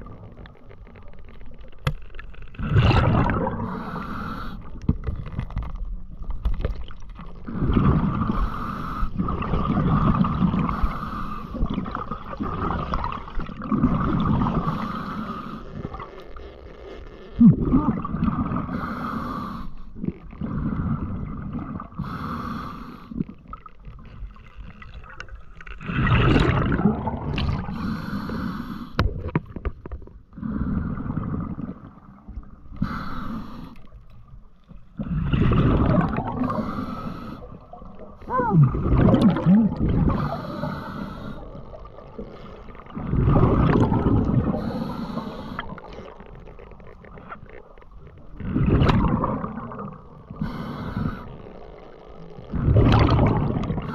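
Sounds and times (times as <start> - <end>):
water gurgling: 0.0 - 53.9
diver breathing: 3.5 - 4.8, 8.3 - 9.3, 10.6 - 11.7, 14.6 - 15.7, 18.6 - 21.2, 21.9 - 23.2, 27.6 - 29.0, 30.3 - 31.3, 32.7 - 33.9, 36.3 - 37.8, 40.0 - 41.9, 44.3 - 46.2, 50.2 - 51.6.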